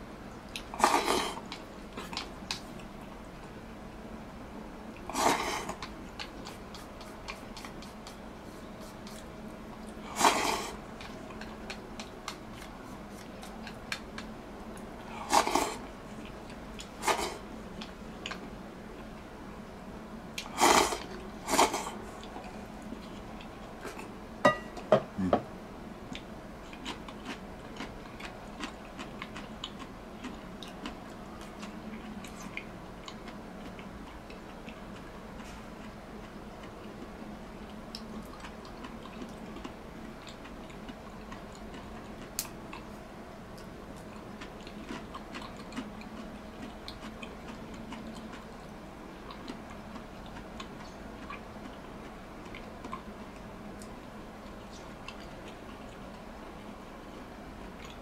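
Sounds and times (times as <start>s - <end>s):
person chewing: 0.5s - 3.0s, 5.0s - 19.1s, 26.1s - 43.0s, 43.6s - 56.3s, 57.7s - 58.0s
tableware clinking: 24.4s - 25.1s.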